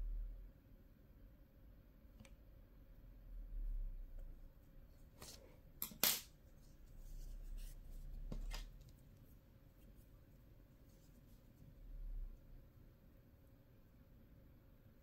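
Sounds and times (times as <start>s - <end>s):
hands handling yarn: 5.0s - 11.8s.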